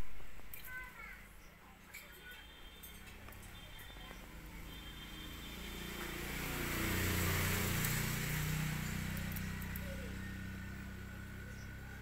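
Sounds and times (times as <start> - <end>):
motor vehicle passing by: 2.8 - 12.0.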